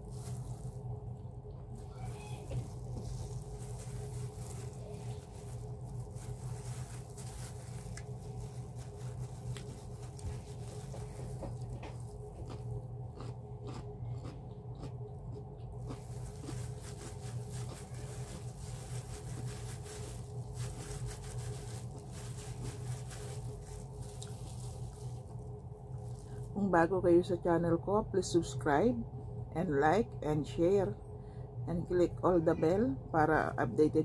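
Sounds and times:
steady low hum: 0.0s - 34.0s
soft chewing: 0.1s - 26.6s.

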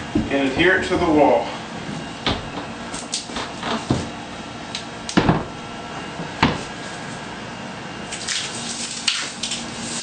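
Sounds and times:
panel thumping against wall: 5.2s - 5.6s.

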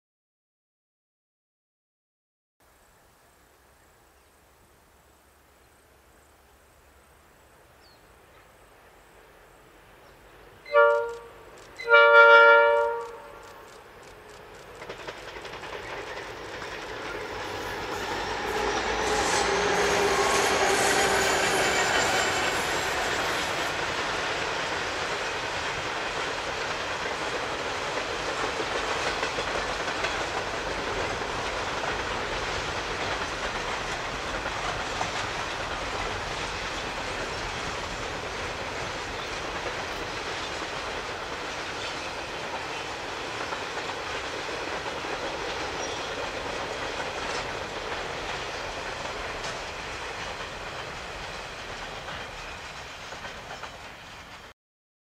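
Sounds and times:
train passing clickety-clack: 10.1s - 54.6s
train horn: 10.6s - 13.7s, 17.6s - 23.6s.

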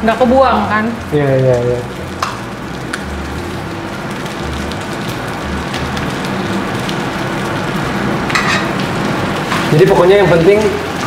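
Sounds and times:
chicken sizzling in a pan: 5.1s - 11.0s.

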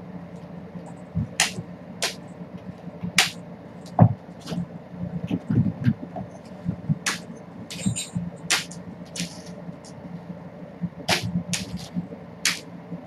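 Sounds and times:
steady low hum: 0.0s - 13.0s
swishing scuffs: 7.1s - 9.5s.

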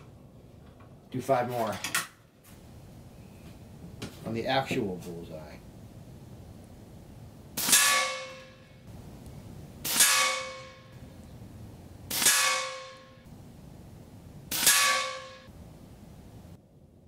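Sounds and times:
air rifle shots with metallic ring: 7.6s - 8.6s, 9.8s - 11.0s, 12.1s - 13.2s, 14.5s - 15.5s.

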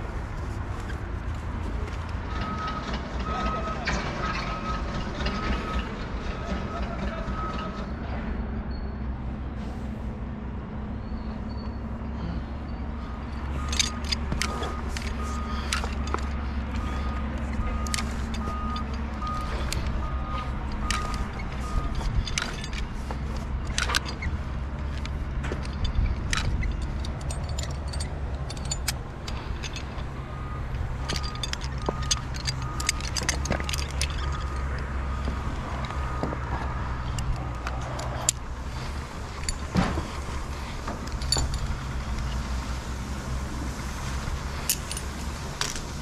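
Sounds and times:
steady low rumble: 9.3s - 46.0s
sharp clicks and knocks: 13.3s - 42.6s.

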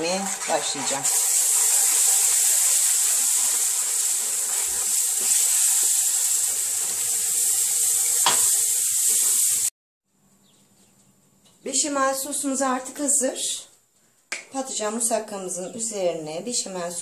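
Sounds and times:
roux sizzling in a frying pan: 0.0s - 9.7s.

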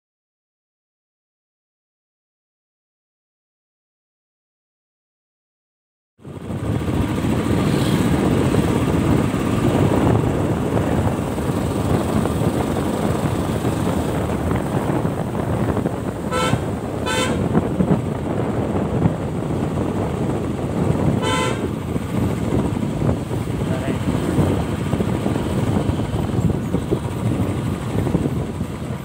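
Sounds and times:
motorcycle engine rumble: 6.2s - 29.0s
wind noise on microphone: 6.2s - 29.0s
vehicle horn tooting: 16.3s - 17.6s, 21.2s - 21.8s.

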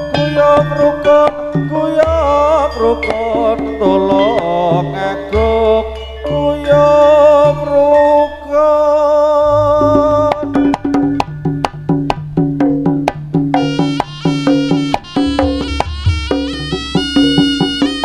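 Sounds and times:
drums and tuned percussion: 0.0s - 8.6s, 9.4s - 18.0s
wavering held melody: 0.0s - 12.5s, 13.5s - 18.0s.

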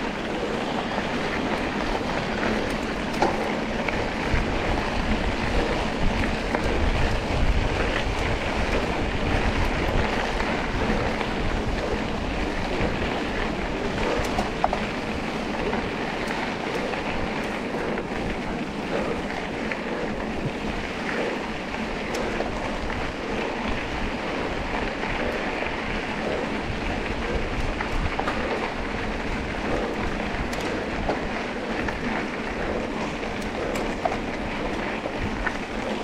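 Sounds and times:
wind on microphone: 0.0s - 36.0s.

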